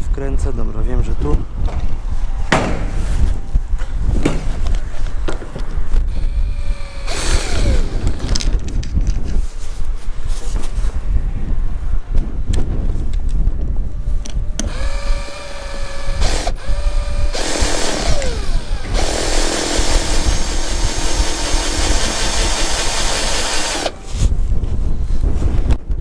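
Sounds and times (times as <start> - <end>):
wind rumble on microphone: 0.0 - 26.0
cordless drill motor whining: 6.1 - 8.4, 14.6 - 24.3.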